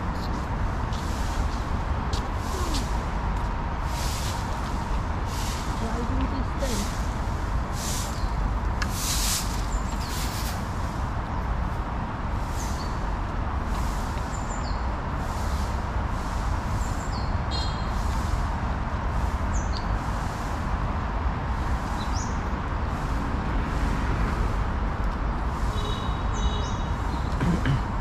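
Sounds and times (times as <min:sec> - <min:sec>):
low city hum: 0:00.0 - 0:28.0
high bird chirps: 0:16.8 - 0:18.0.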